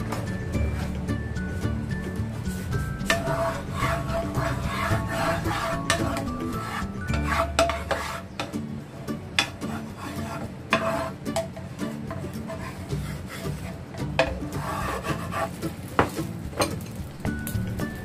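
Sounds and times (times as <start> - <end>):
spatula scraping frying pan: 2.0 - 8.6, 9.4 - 16.4.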